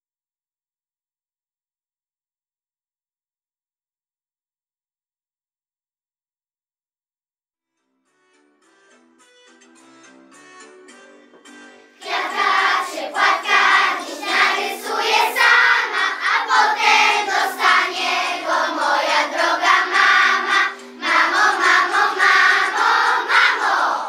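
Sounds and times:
soft instrumental music: 0:07.7 - 0:24.0
children singing together: 0:12.0 - 0:24.0.

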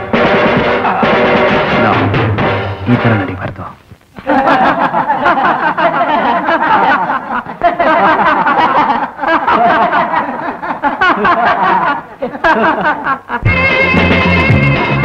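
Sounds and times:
people laughing and chattering: 0:04.2 - 0:13.7.

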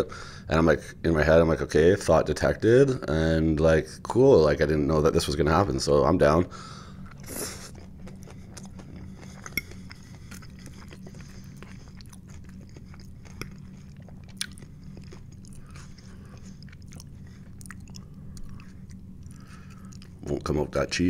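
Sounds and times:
steady low hum: 0:00.0 - 0:21.0
person chewing food: 0:06.8 - 0:20.4.

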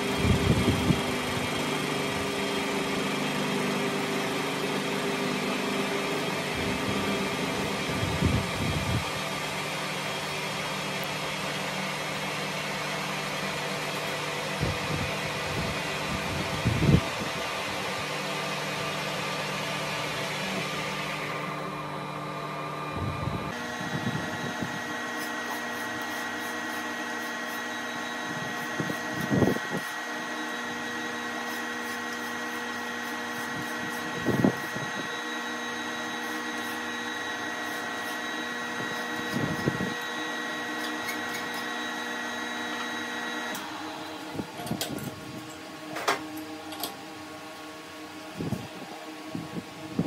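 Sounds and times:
machine hum: 0:00.0 - 0:50.0.

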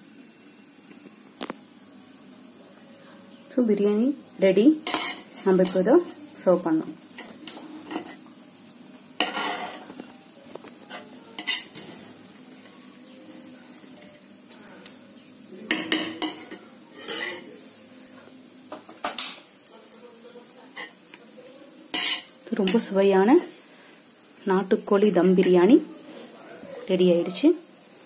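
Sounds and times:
ladle scraping a metal pot: 0:09.2 - 0:09.9, 0:15.9 - 0:17.5.

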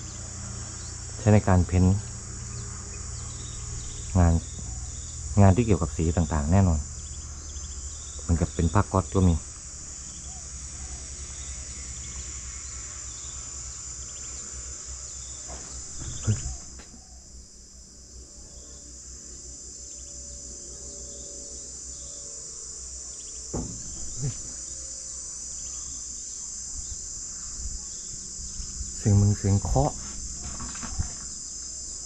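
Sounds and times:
insects chirring: 0:00.0 - 0:32.0
brief thump: 0:15.5 - 0:17.0, 0:23.5 - 0:24.6.

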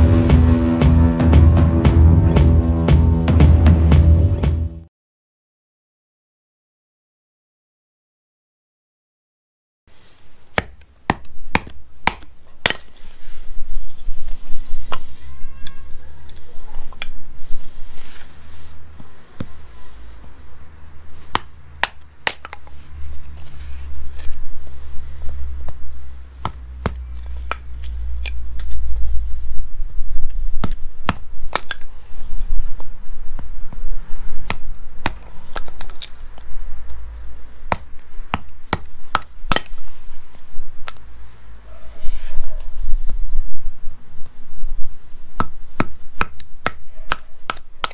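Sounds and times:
steady low rumble: 0:00.0 - 0:04.8, 0:19.6 - 0:30.4, 0:32.6 - 0:39.1
knife chopping wood: 0:10.5 - 0:13.0, 0:21.3 - 0:22.7, 0:26.4 - 0:28.4, 0:30.6 - 0:31.8, 0:34.4 - 0:36.0, 0:37.7 - 0:39.8, 0:45.4 - 0:47.9.

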